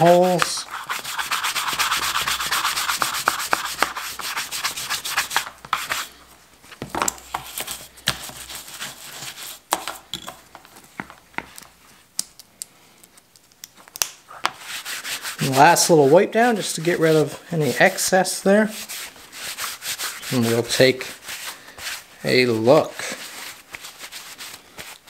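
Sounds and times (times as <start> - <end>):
brush scrubbing leather: 0.0 - 6.1, 7.6 - 9.6, 14.6 - 22.1, 23.0 - 25.0.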